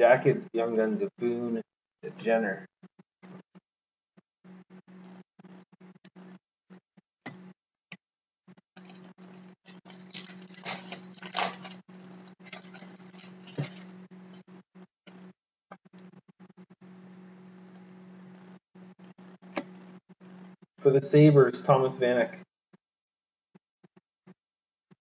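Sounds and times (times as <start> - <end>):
foil wrapper tearing and crinkling: 8.8 - 13.9
steady low hum: 8.8 - 15.3, 16.0 - 22.4.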